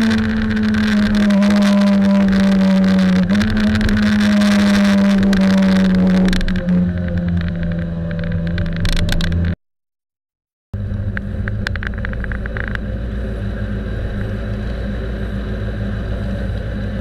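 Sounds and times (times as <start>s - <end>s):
motorcycle engine running: 0.0s - 9.6s.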